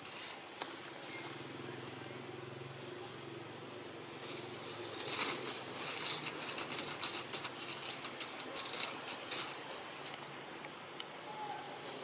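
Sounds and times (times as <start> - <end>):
dry leaves crackling: 4.0 - 10.5.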